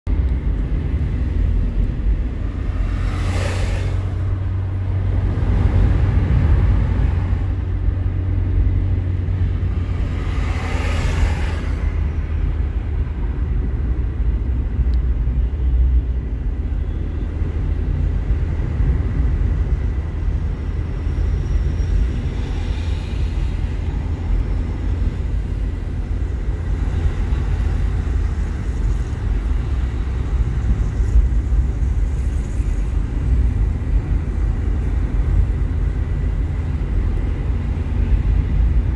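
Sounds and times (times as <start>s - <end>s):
car road and engine rumble: 0.0s - 38.9s.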